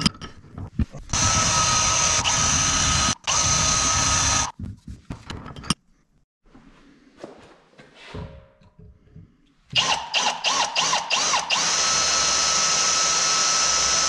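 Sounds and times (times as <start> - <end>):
cordless drill whine: 1.2 - 4.5, 9.8 - 14.0.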